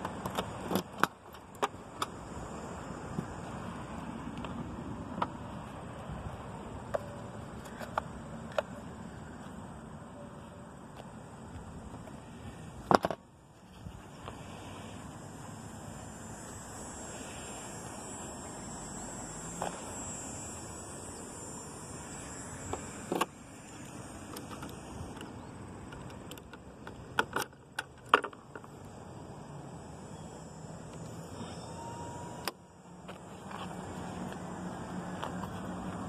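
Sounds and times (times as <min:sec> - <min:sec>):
sharp clicks of scooter handling: 0:00.0 - 0:02.2, 0:06.8 - 0:09.6, 0:22.7 - 0:28.8
outdoor background hiss: 0:00.0 - 0:36.0.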